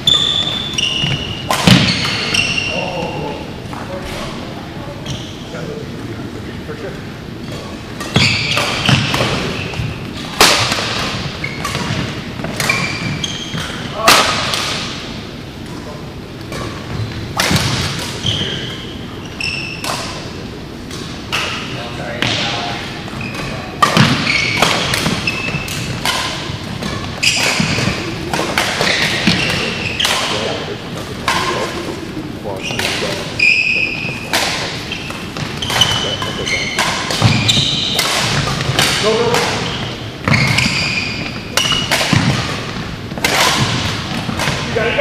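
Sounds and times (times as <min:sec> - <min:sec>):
shoes squeaking on floor: 0:00.0 - 0:03.4, 0:05.0 - 0:05.5, 0:07.4 - 0:10.3, 0:11.2 - 0:14.0, 0:18.2 - 0:20.2, 0:21.5 - 0:30.7, 0:32.4 - 0:45.0
rackets hitting shuttlecock: 0:00.1 - 0:03.0, 0:07.5 - 0:15.8, 0:16.4 - 0:18.9, 0:19.5 - 0:45.0.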